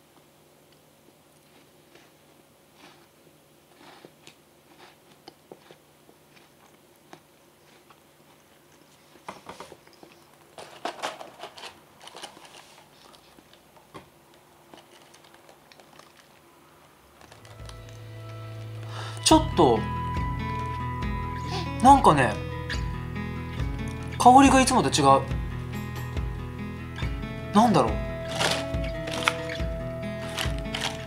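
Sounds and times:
person chewing crunchy sweet: 1.3s - 9.2s.

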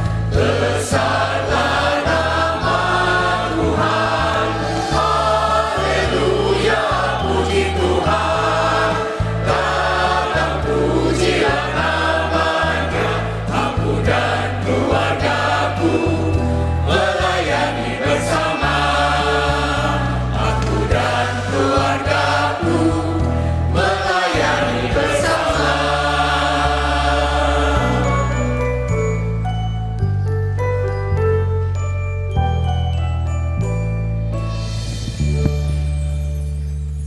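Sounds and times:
bass line: 0.0s - 29.5s
choir singing a hymn: 0.2s - 28.7s.

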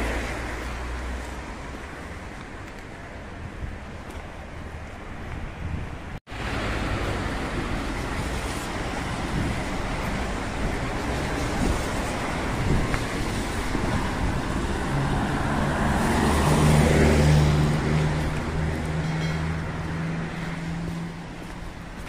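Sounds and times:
tyres hissing on wet asphalt: 6.3s - 22.0s.

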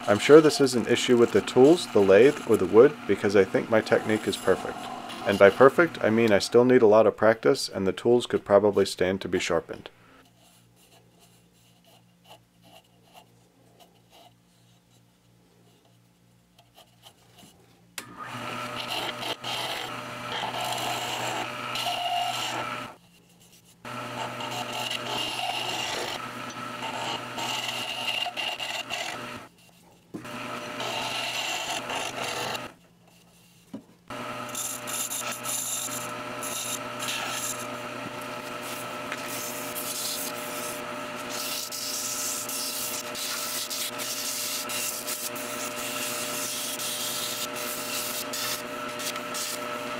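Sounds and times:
sandpaper on turning wood: 0.0s - 6.2s, 24.2s - 26.2s, 26.8s - 29.2s, 34.5s - 37.7s, 38.4s - 49.6s
lathe motor humming: 0.0s - 6.5s, 18.0s - 23.0s, 23.9s - 29.5s, 30.2s - 32.8s, 34.1s - 49.9s
chisel scraping spinning wood: 0.0s - 6.8s, 18.2s - 49.9s.

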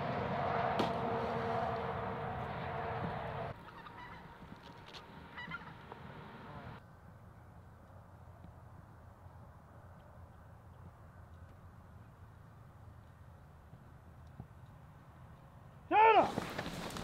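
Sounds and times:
geese honking: 0.0s - 4.4s, 5.3s - 6.8s.

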